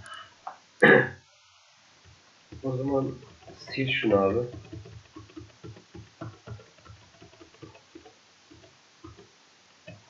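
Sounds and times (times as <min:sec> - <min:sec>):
keyboard keys clicking: 0:02.6 - 0:09.3.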